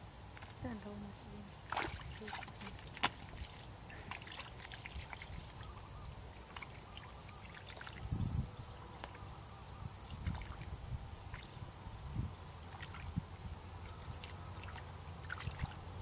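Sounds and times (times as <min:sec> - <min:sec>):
sloshing in muddy water: 0:01.6 - 0:08.1, 0:09.9 - 0:11.7, 0:12.6 - 0:16.0.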